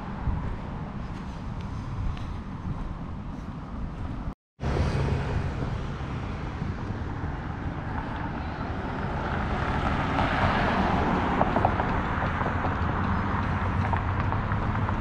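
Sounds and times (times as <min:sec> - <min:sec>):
car driving past: 0:04.6 - 0:15.0.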